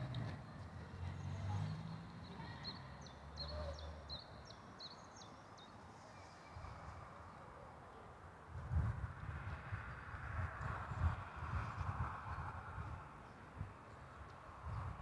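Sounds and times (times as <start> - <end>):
songbird chirping: 0.0 - 6.3.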